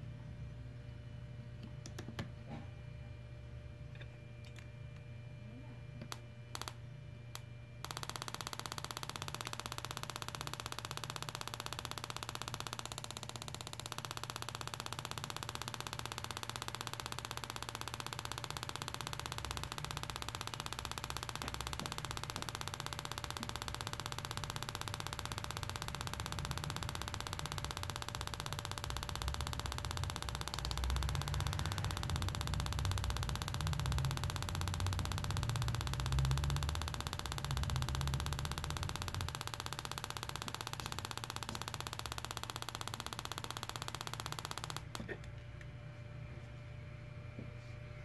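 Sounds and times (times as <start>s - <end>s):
connector clicking onto coil: 7.9s - 45.0s.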